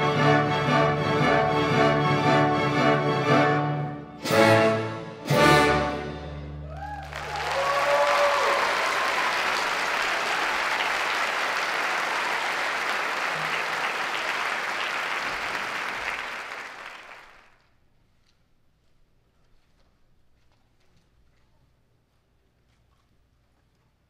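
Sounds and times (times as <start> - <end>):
audience cheering: 6.6 - 17.5
audience applauding: 6.7 - 17.6.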